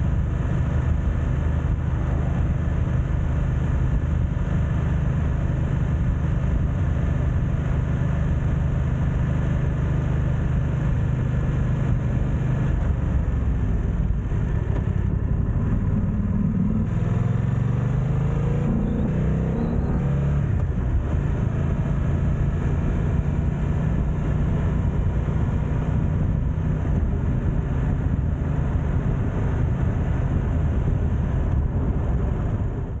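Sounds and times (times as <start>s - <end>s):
motorcycle engine running: 0.0s - 33.0s
wind noise on microphone: 11.6s - 17.2s, 23.9s - 33.0s.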